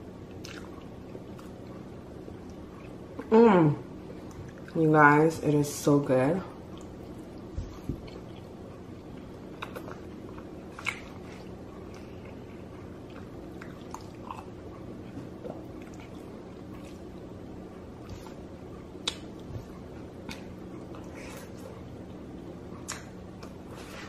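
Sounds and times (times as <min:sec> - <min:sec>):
steady low hum: 0:00.0 - 0:24.0
quiet chewing: 0:00.2 - 0:03.3, 0:06.6 - 0:24.0.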